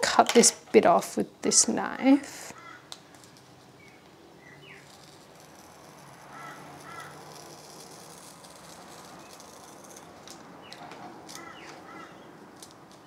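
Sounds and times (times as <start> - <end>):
knife blade scratching paper: 4.6 - 13.0
birds chirping: 10.6 - 12.4.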